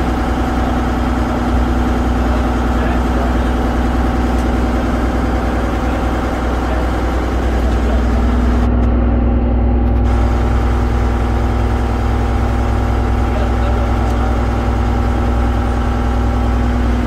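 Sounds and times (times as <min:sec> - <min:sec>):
boat engine humming: 0:00.0 - 0:17.0.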